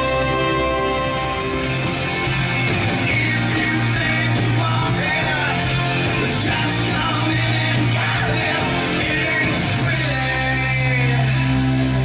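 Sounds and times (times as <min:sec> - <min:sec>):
stage-show music: 0:00.0 - 0:12.0
person singing: 0:02.8 - 0:12.0.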